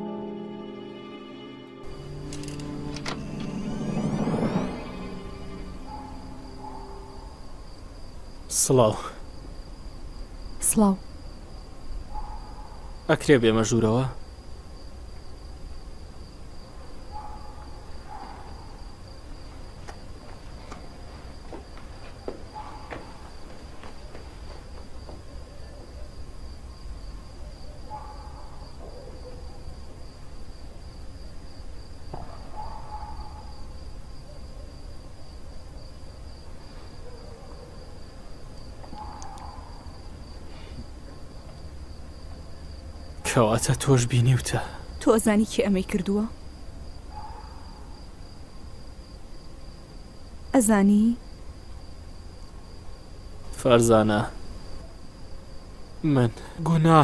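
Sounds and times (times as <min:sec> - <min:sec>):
short hooting tone: 0:00.0 - 0:07.6
high-pitched whine: 0:00.0 - 0:07.7
low hum: 0:00.0 - 0:07.7.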